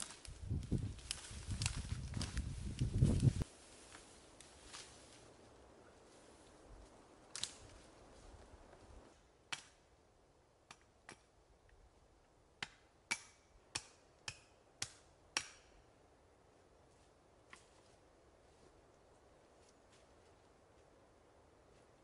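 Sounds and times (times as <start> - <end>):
branch dragged through dry grass: 0.0 - 9.1
wood chopping strikes: 9.5 - 9.8, 12.6 - 15.7.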